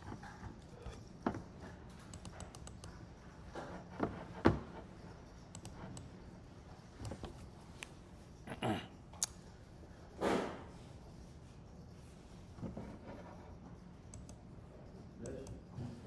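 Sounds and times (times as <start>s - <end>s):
keyboard and mouse clicks: 2.0s - 3.0s, 5.5s - 6.1s, 14.1s - 14.4s.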